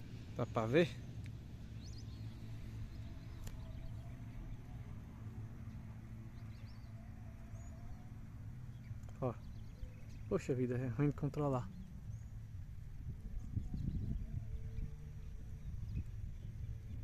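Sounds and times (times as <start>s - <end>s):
steady low rumble: 0.0s - 17.0s
faint bird calls: 1.0s - 12.6s
light tick: 1.2s - 1.4s.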